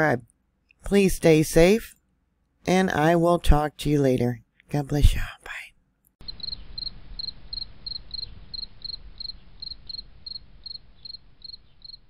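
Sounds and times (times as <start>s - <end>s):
cricket chirping: 6.2s - 12.0s
low steady rumble: 6.2s - 12.0s.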